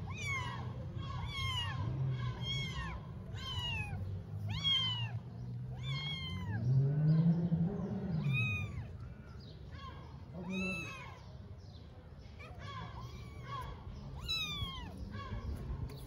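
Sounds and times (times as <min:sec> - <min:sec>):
kittens mewing: 0:00.0 - 0:06.6, 0:08.2 - 0:09.0, 0:10.3 - 0:11.2, 0:12.4 - 0:15.5.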